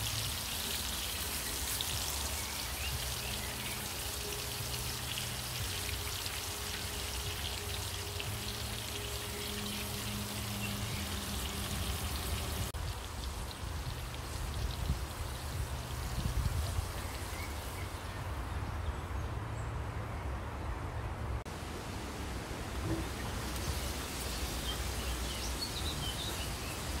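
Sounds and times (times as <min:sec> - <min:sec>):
meat sizzling in a skillet: 0:00.0 - 0:17.8.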